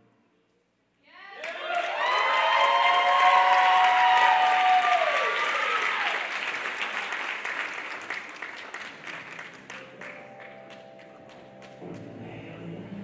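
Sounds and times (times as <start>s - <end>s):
cheer sliding down in pitch: 1.4s - 7.2s
audience applauding and cheering: 1.4s - 12.2s.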